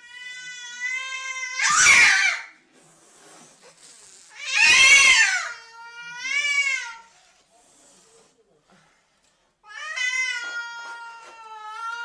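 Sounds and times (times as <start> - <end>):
cat meowing and yowling: 4.4 - 7.0.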